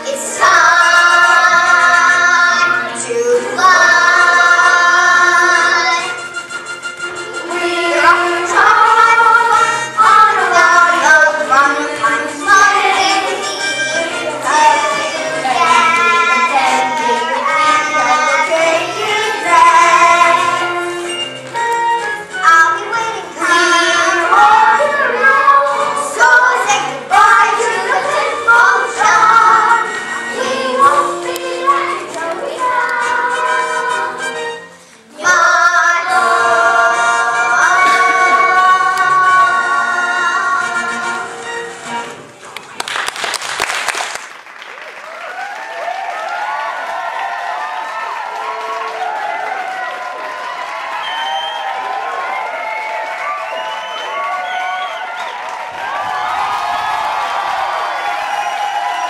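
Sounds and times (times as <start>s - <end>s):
children singing: 0.0s - 6.3s, 7.3s - 21.1s, 22.4s - 34.4s, 35.1s - 41.4s
musical accompaniment: 0.0s - 43.0s.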